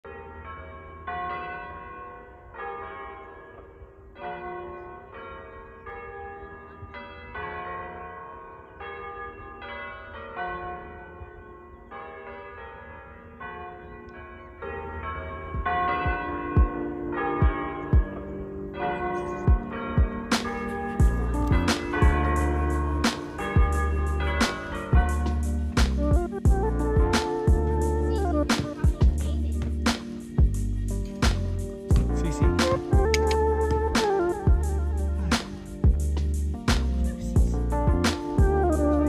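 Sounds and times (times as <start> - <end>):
church bells ringing: 0.0 - 39.0
music with deep drum beats: 15.6 - 16.8, 17.4 - 18.1, 19.5 - 39.0.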